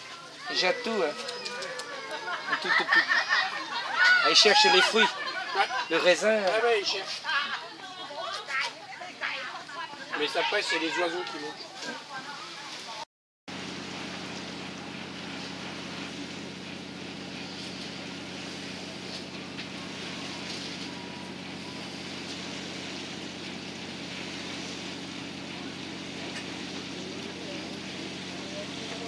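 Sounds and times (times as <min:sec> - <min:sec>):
boat engine humming: 0:13.5 - 0:29.0.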